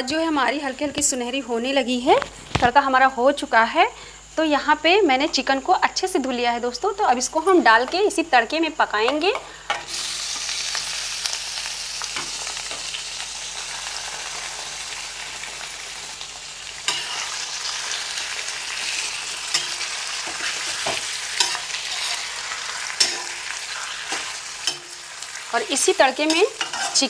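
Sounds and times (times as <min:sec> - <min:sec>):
chicken sizzling in oil: 0:09.6 - 0:27.0
metal spoon scraping iron pan: 0:16.9 - 0:17.4, 0:19.5 - 0:22.3, 0:22.9 - 0:25.0, 0:26.2 - 0:27.0.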